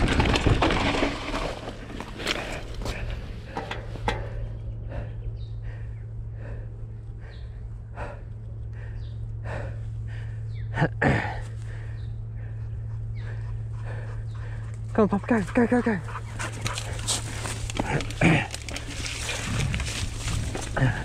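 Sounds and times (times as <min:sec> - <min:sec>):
steady low hum: 0:00.0 - 0:21.0
heavy rhythmic breathing: 0:02.1 - 0:21.0.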